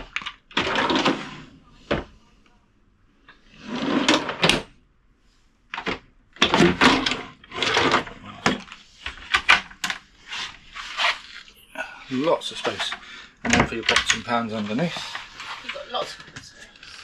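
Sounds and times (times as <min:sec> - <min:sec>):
drawers clicking and knocking shut: 0:00.0 - 0:02.1, 0:03.8 - 0:04.7, 0:05.7 - 0:10.0, 0:12.6 - 0:15.2
drawer runners sliding: 0:00.5 - 0:02.1, 0:03.5 - 0:04.7, 0:05.8 - 0:11.4.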